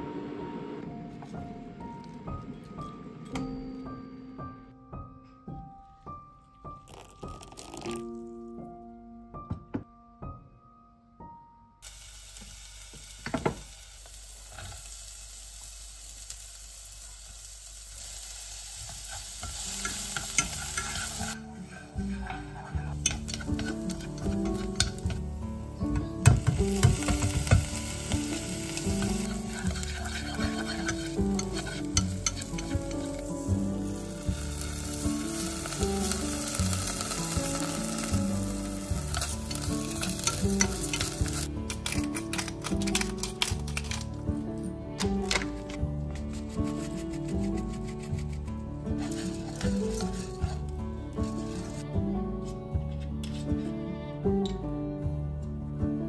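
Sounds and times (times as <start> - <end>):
shallots sizzling in hot oil: 11.8 - 44.1, 45.3 - 51.8
stirring clicks and scrapes: 18.9 - 25.2, 26.3 - 33.2, 39.0 - 44.1, 45.2 - 51.8.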